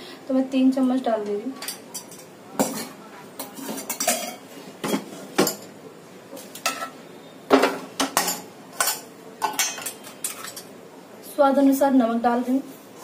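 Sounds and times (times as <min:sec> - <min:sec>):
metal bowls and spoon clinking: 0:01.6 - 0:05.8, 0:06.4 - 0:10.8.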